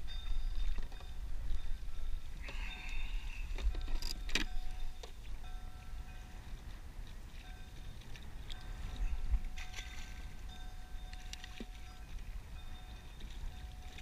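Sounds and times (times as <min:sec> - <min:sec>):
wind rumbling on microphone: 0:00.0 - 0:14.0
fishing tackle clicks: 0:02.9 - 0:05.2.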